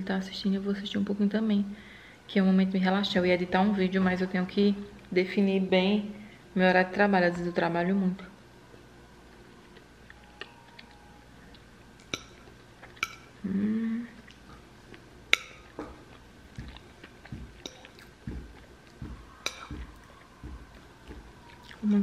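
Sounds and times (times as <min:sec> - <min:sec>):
soft chewing: 0:08.7 - 0:13.4, 0:14.0 - 0:22.0
cutlery clicking on a plate: 0:12.0 - 0:13.3, 0:19.4 - 0:19.8
person humming: 0:13.4 - 0:14.3.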